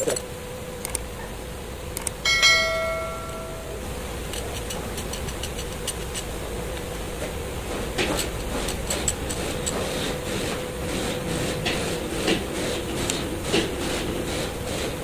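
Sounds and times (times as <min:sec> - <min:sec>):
sharp clicks: 0:00.0 - 0:01.1, 0:01.9 - 0:02.2
steady hum: 0:00.0 - 0:15.0.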